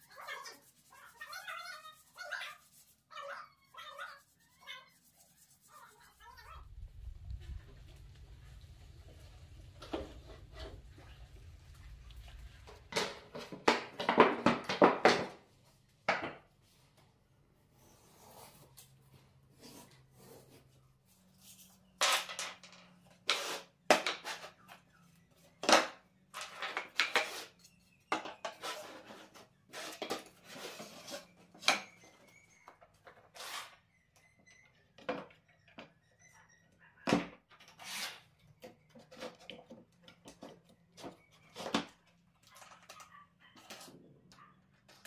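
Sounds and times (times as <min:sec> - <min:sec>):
wooden knocks and clatters: 0:09.5 - 0:15.4.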